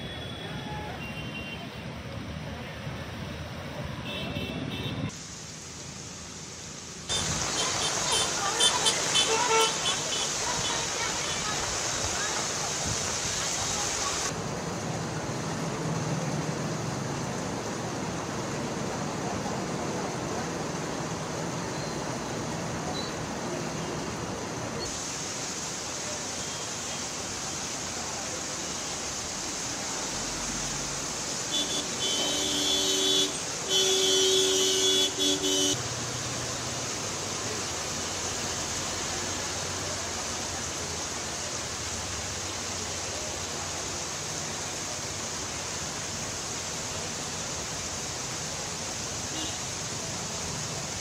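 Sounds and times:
heavy rain on a flooded street: 0.0s - 51.0s
vehicle horn honking: 31.5s - 35.8s.

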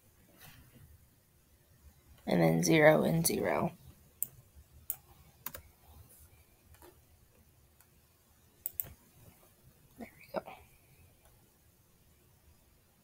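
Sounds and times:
keyboard and mouse clicks: 4.2s - 5.7s, 6.7s - 7.0s, 8.6s - 9.0s.

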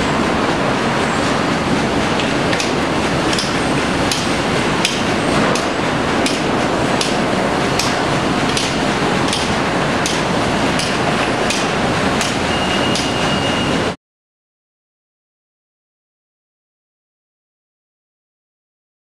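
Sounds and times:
sawmill machinery running: 0.0s - 14.0s
sharp knocks: 2.2s - 13.3s.

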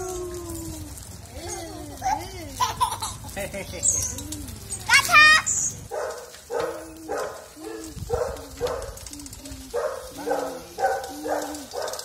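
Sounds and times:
dog barking: 5.9s - 9.0s, 9.7s - 12.0s.

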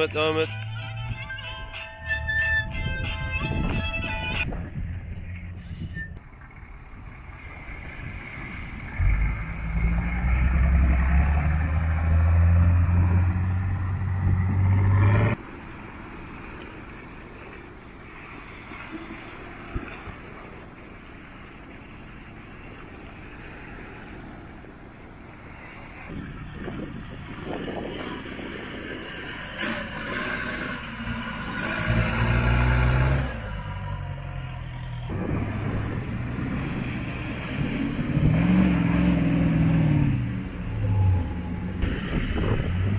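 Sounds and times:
water splashing around wheels: 6.3s - 12.9s, 15.4s - 34.2s, 35.1s - 42.9s
off-road engines revving: 6.4s - 15.5s, 25.2s - 42.9s.

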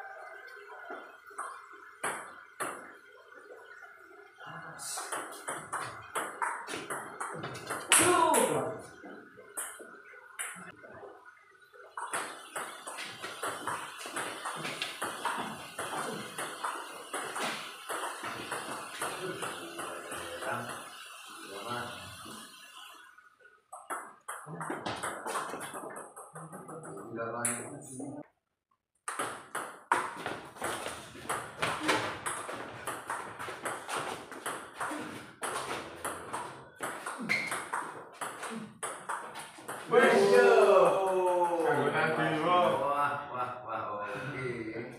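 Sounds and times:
ping pong ball hitting paddles: 0.6s - 3.6s, 4.9s - 10.8s, 11.9s - 21.6s, 23.7s - 27.9s, 29.0s - 41.8s
ping pong ball bouncing on table: 1.4s - 2.9s, 5.0s - 8.7s, 9.5s - 10.7s, 12.0s - 21.0s, 23.7s - 27.7s, 29.1s - 39.9s.

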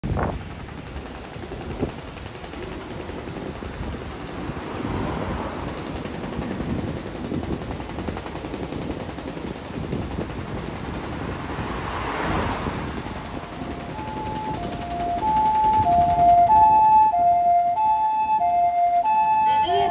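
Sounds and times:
wind on microphone: 0.0s - 19.9s
ambulance engine idling: 12.9s - 19.9s
two-tone siren: 13.4s - 19.9s.

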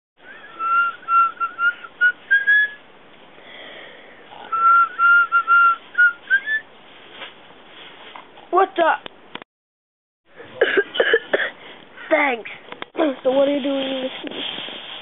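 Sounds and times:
person whistling a tune: 0.2s - 2.8s, 4.5s - 6.6s.

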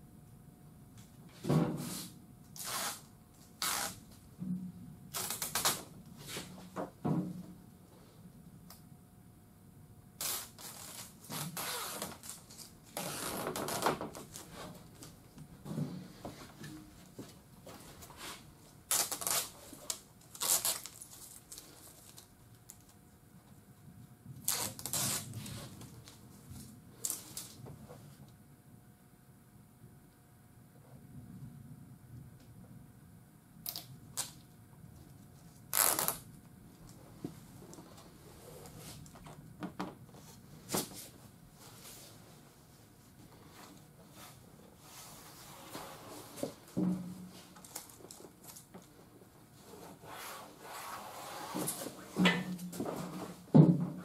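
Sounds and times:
tape being pulled and pressed: 1.9s - 4.1s, 5.1s - 6.5s, 10.2s - 15.1s, 18.9s - 23.0s, 24.4s - 26.0s, 33.6s - 34.4s, 35.6s - 36.3s, 44.2s - 48.8s
film liner peeling off tape: 5.1s - 5.8s, 18.9s - 23.0s, 24.5s - 25.6s, 35.7s - 36.3s.

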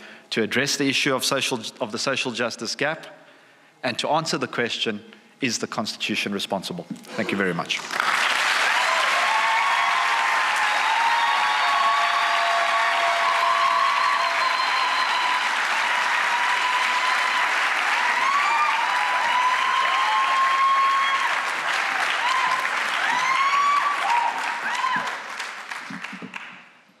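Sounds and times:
audience calls and cheers: 7.2s - 26.7s
audience applauding: 7.3s - 26.8s.

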